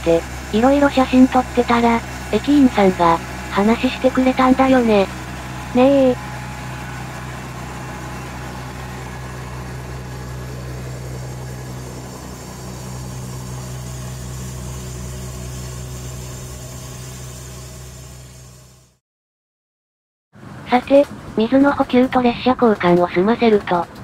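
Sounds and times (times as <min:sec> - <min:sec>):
diesel locomotive engine idling: 0:00.0 - 0:19.0.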